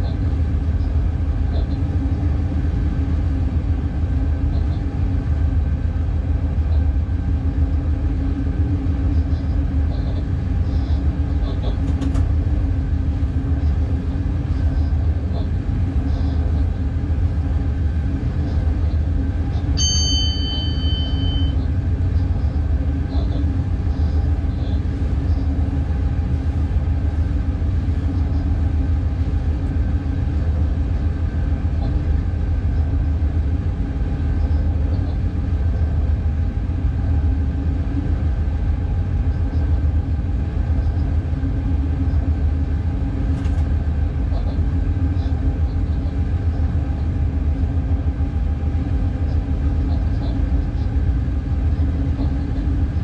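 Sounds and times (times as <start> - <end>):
locomotive cab rumble and hum: 0.0 - 53.0
high electronic beep: 19.8 - 21.6.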